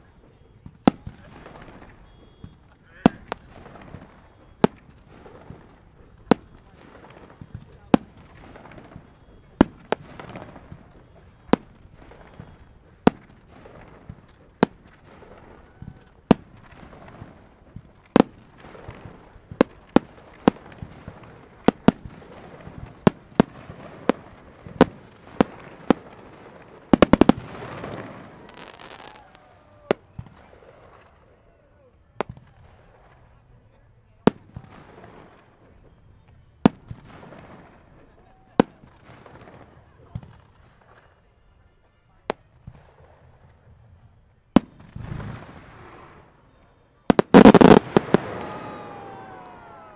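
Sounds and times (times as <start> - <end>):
firework crackling: 0.0 - 31.1, 47.1 - 49.9
rapid firework cracks: 11.6 - 31.1, 47.1 - 49.9
firework shells booming: 16.2 - 29.1, 47.1 - 49.9.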